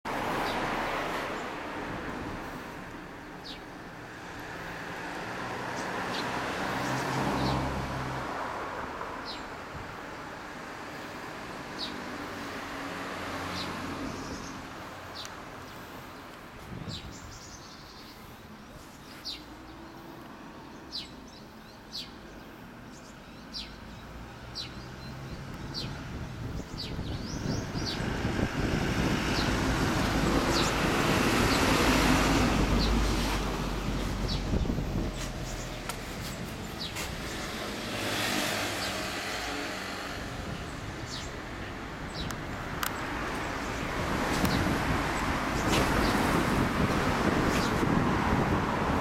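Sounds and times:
small birds chirping: 2.4 - 7.6, 9.2 - 12.6, 13.4 - 46.4, 47.4 - 47.9
vehicle noise hum: 24.3 - 49.0.

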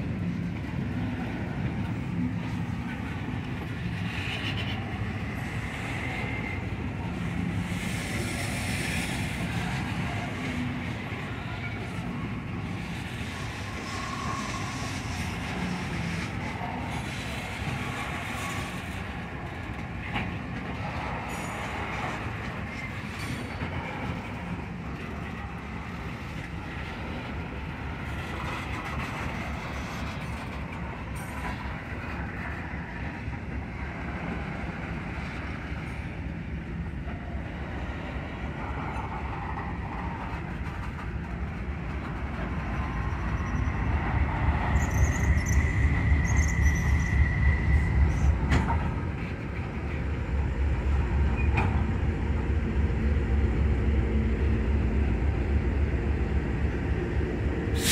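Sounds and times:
train wheels rumbling on track: 0.0 - 57.9
high wheel squeal: 7.8 - 19.0, 42.4 - 48.7.

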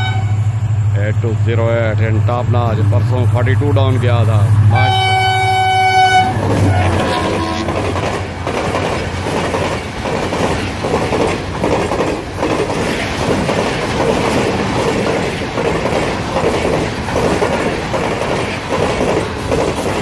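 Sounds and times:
train wheels clattering over rail joints: 6.4 - 20.0.

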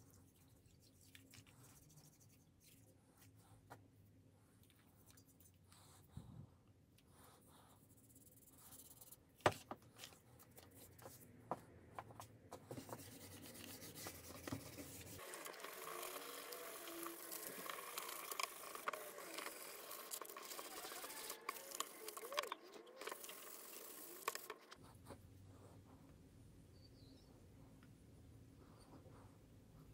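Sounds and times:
brush scrubbing blade in liquid: 13.2 - 24.8.

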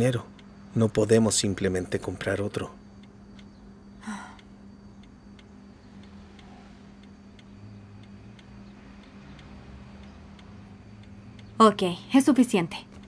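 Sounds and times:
clock ticking: 0.0 - 13.0
low steady hum: 0.0 - 13.0.

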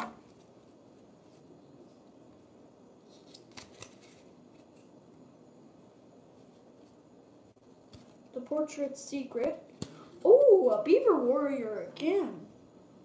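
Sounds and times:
cards sliding together: 3.0 - 4.9.

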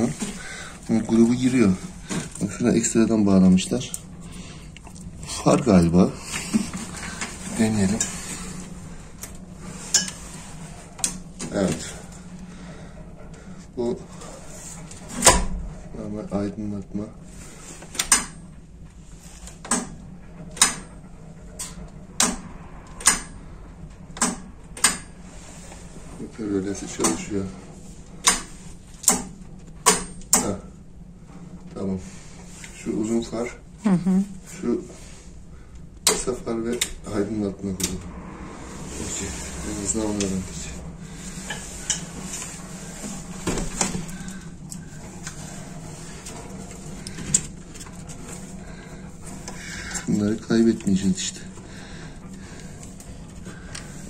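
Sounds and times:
steady low hum: 0.0 - 54.0
sharp clicks and knocks: 19.6 - 21.0, 21.6 - 25.1, 28.2 - 30.6.

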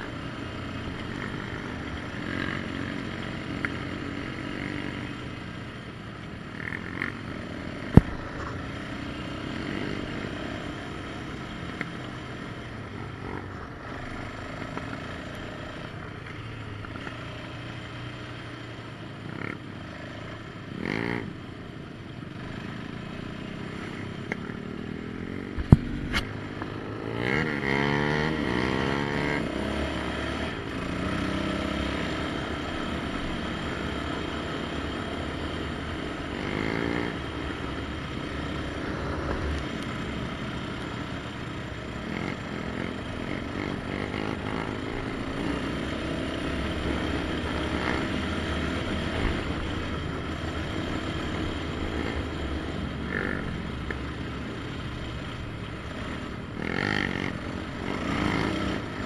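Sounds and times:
quad engine revving: 22.4 - 55.0, 55.8 - 59.0.

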